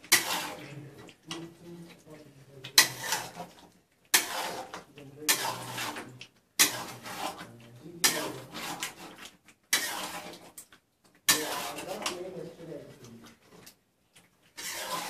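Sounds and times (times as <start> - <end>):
metal spatula clanking and scraping pan: 0.0 - 1.5, 2.7 - 10.6, 11.3 - 12.2, 14.6 - 15.0.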